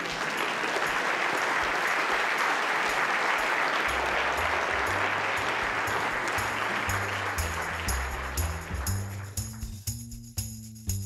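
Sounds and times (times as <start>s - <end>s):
audience applauding: 0.0s - 9.8s
low bass music: 3.9s - 11.0s.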